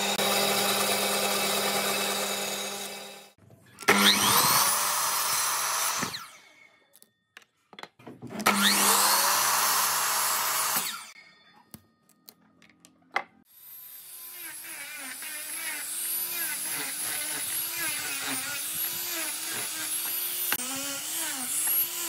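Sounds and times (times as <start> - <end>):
miter saw cutting wood: 0.0 - 6.6, 8.4 - 11.2, 13.6 - 22.0
angle grinder sanding: 14.0 - 22.0.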